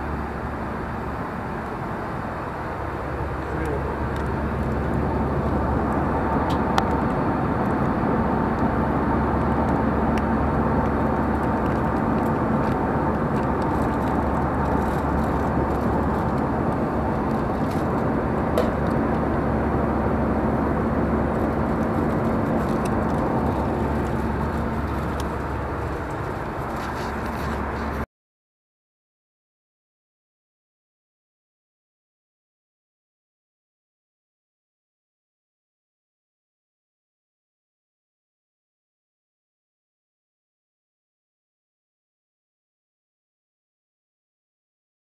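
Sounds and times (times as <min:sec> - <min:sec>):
airplane cabin drone: 0:00.0 - 0:28.1.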